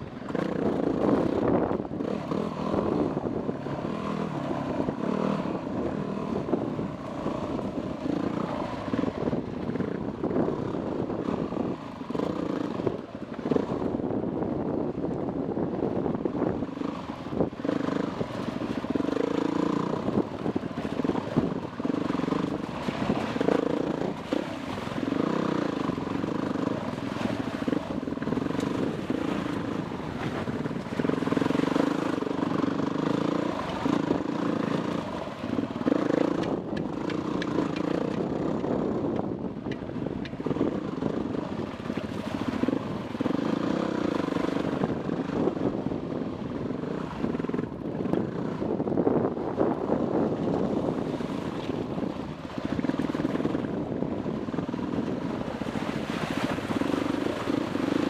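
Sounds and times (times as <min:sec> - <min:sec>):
dirt bike engine revving: 0:00.2 - 0:09.1, 0:16.7 - 0:39.0, 0:43.2 - 0:45.5.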